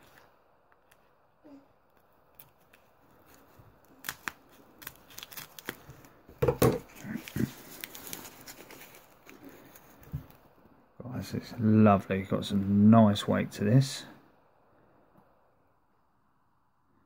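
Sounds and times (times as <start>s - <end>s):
wrapping crinkling: 0.0s - 10.6s
scissors snipping wrapping: 1.9s - 6.1s.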